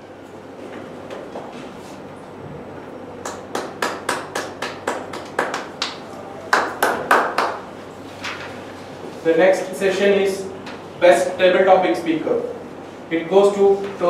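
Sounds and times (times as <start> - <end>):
hands clapping: 3.2 - 7.6.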